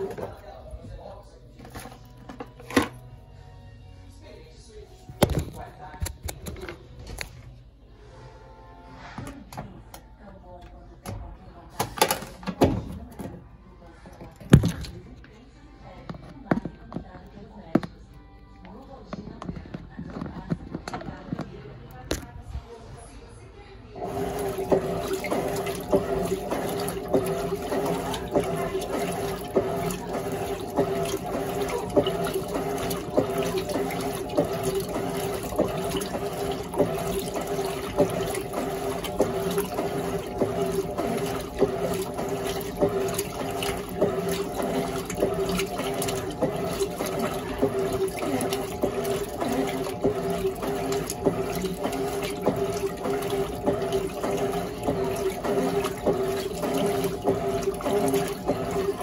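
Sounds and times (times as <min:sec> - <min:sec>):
water sloshing and splashing: 0:00.0 - 0:03.0, 0:12.0 - 0:15.2, 0:24.0 - 0:59.0
washing machine motor hum: 0:00.0 - 0:15.2, 0:23.9 - 0:59.0.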